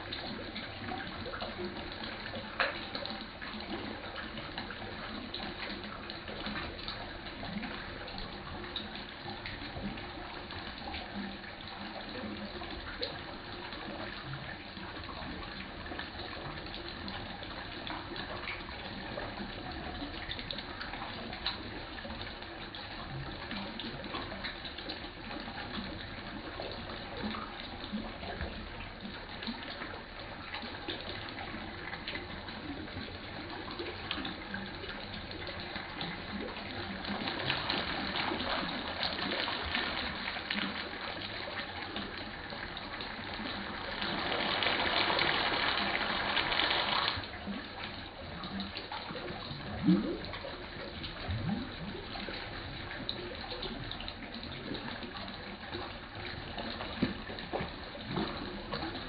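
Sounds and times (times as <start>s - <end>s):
water splashing into a pond: 32.9s - 52.0s.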